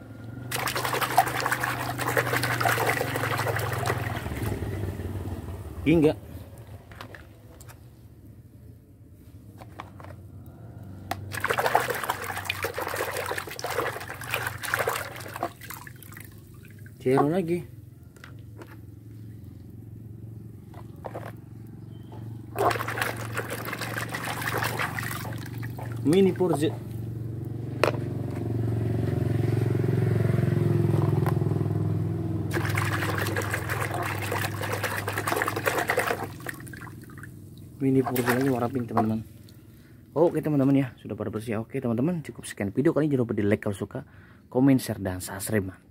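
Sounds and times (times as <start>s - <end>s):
engine droning: 0.0s - 41.5s
water sloshing and splashing: 0.4s - 4.9s, 6.6s - 7.9s, 11.1s - 17.6s, 20.6s - 27.1s, 32.5s - 39.8s.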